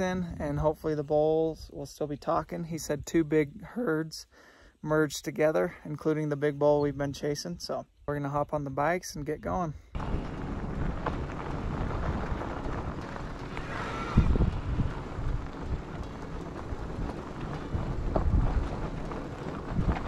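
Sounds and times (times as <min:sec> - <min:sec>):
wind on microphone: 0:00.0 - 0:03.1, 0:09.9 - 0:20.0
bike jolting over bumps: 0:10.0 - 0:20.0
tyres rumbling on gravel: 0:10.0 - 0:20.0.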